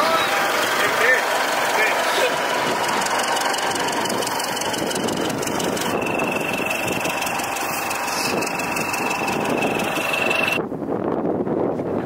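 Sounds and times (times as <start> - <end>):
engine running: 0.0 - 10.6
high-pitched whine: 1.7 - 10.6.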